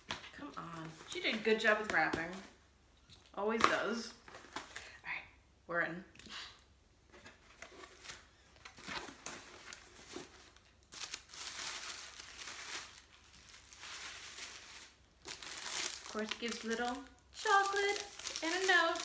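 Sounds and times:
tissue paper and cardboard rustling: 7.2 - 19.0.

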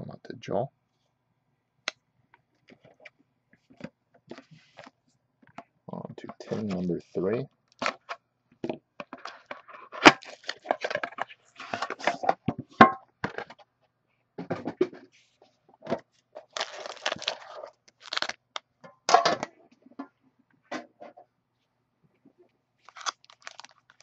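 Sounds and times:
plastic wrap crinkling and tearing: 9.9 - 11.1, 16.4 - 18.6, 22.8 - 24.0.

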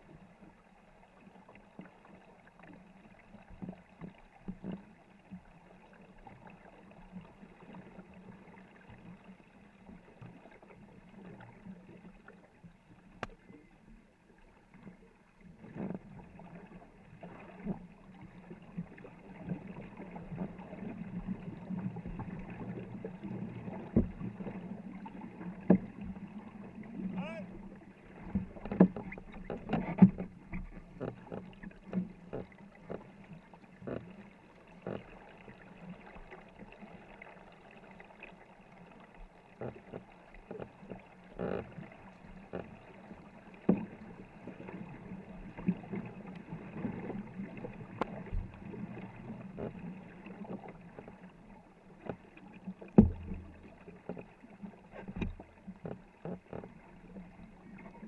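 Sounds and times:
paddles splashing water: 0.0 - 58.0
paddles knocking wooden hull: 27.0 - 34.2, 45.9 - 57.4.

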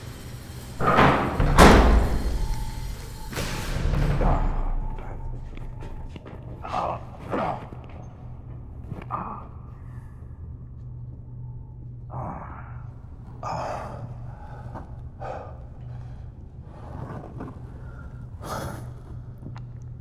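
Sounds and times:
steady low hum: 0.0 - 20.0
person breathing hard: 12.1 - 19.5.

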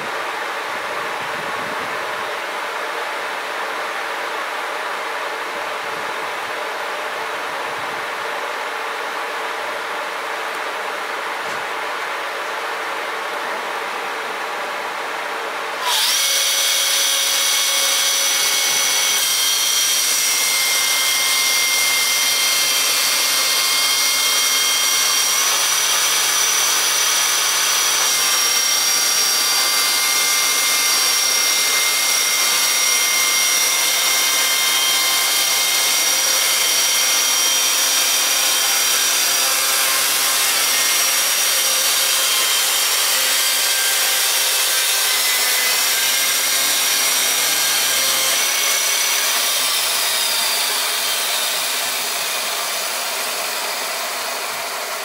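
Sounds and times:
chainsaw sawing log: 15.8 - 55.0.

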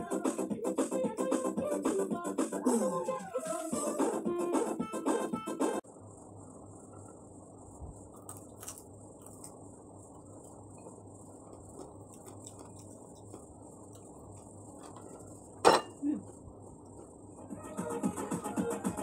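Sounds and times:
person chewing: 8.1 - 15.3.

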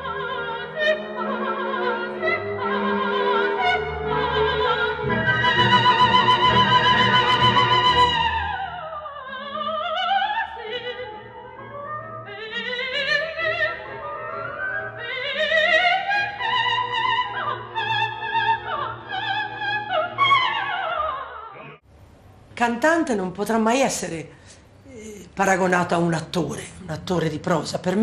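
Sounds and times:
operatic soprano singing: 0.0 - 21.8.

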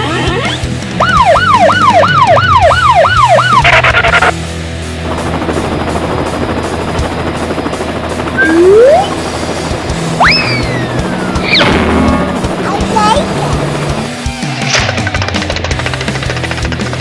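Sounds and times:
electronic police siren: 1.0 - 4.3, 8.4 - 9.2, 10.2 - 12.3.

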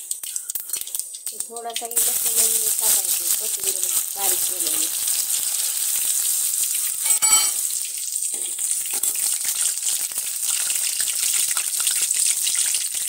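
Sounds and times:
spices sizzling in hot oil: 0.0 - 13.0
metal spoon stirring: 6.9 - 7.6
ringing metal clink: 7.0 - 7.6.

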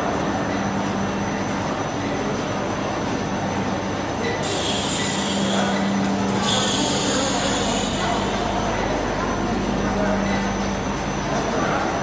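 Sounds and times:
laminating machine running: 4.4 - 11.8.

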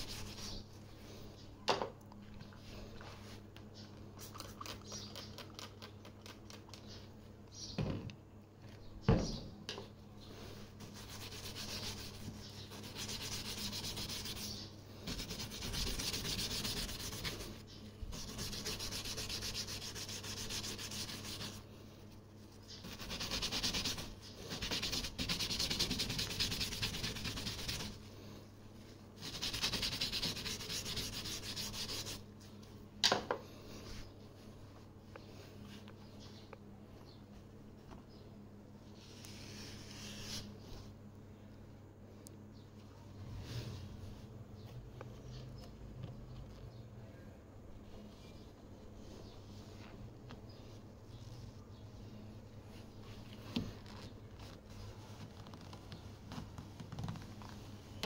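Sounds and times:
brush scrubbing rubber weatherstrip: 10.8 - 21.6, 22.5 - 28.0, 29.2 - 32.2.

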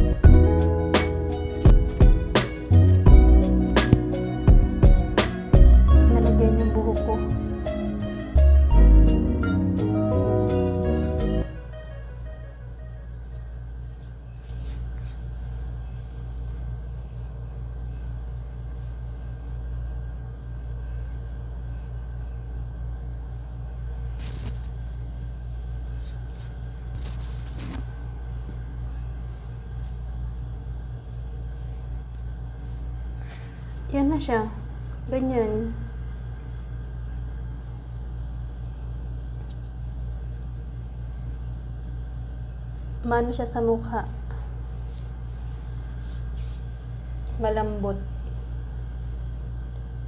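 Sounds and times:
low pulsing hum: 0.0 - 50.0.

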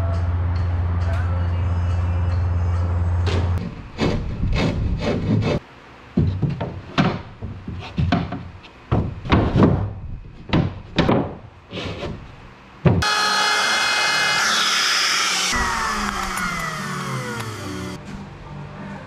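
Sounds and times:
wood router whining: 13.0 - 18.0.

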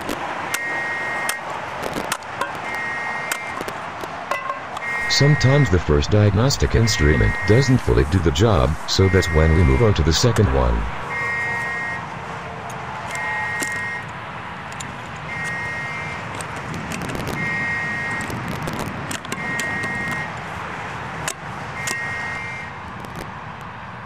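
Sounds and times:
high electronic beep: 4.9 - 11.0.

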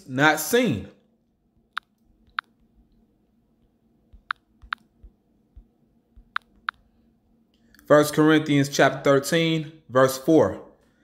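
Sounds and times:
taps on touchscreen: 4.1 - 6.8.

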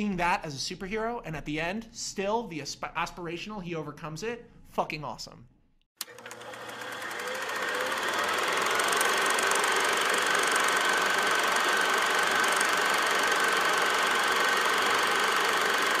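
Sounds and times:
mechanical whirring and rattling: 6.0 - 16.0.

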